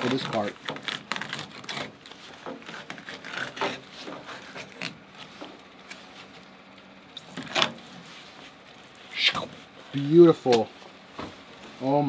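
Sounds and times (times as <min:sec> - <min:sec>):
knife scraping along fish bone: 0:00.0 - 0:05.0.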